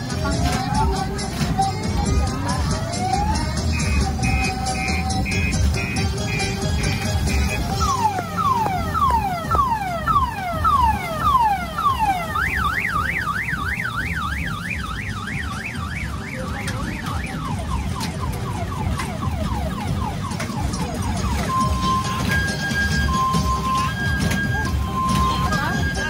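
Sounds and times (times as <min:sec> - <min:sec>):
car alarm siren: 0:00.0 - 0:26.0.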